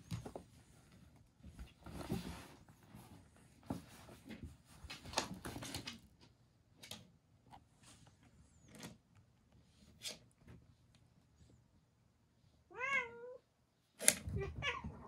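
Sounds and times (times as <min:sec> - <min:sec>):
cats scuffling on a mat: 0:00.0 - 0:06.3.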